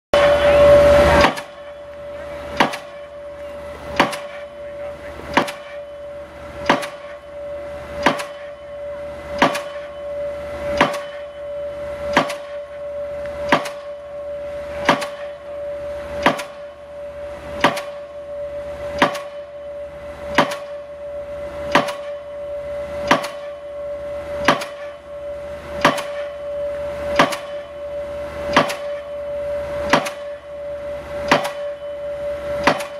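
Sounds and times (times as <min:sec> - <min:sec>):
pile hammer blows: 0:00.2 - 0:01.7, 0:02.5 - 0:03.2, 0:03.9 - 0:04.5, 0:05.3 - 0:05.9, 0:06.6 - 0:07.3, 0:08.0 - 0:08.6, 0:09.3 - 0:10.0, 0:10.7 - 0:11.4, 0:12.0 - 0:12.7, 0:13.4 - 0:14.0, 0:14.7 - 0:15.4, 0:16.2 - 0:16.7, 0:17.6 - 0:18.0, 0:18.9 - 0:19.4, 0:20.3 - 0:20.8, 0:21.7 - 0:22.2, 0:23.0 - 0:23.6, 0:24.4 - 0:25.0, 0:25.8 - 0:26.4, 0:27.1 - 0:27.8, 0:28.5 - 0:29.1, 0:29.8 - 0:30.4, 0:31.2 - 0:31.9, 0:32.6 - 0:32.9
steady tone: 0:00.2 - 0:32.9.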